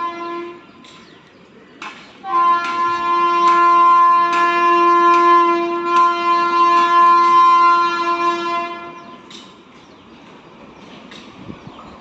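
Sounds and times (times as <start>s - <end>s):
locomotive horn blast: 0.0s - 0.8s, 2.2s - 9.3s.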